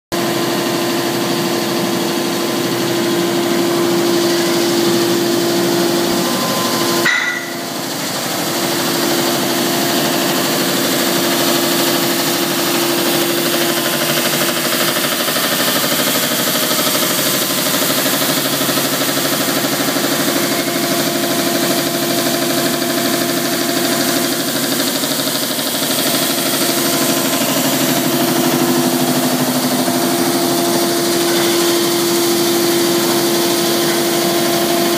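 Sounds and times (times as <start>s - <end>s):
deburring machine humming: 0.2s - 34.9s
sharp knock: 7.0s - 7.7s.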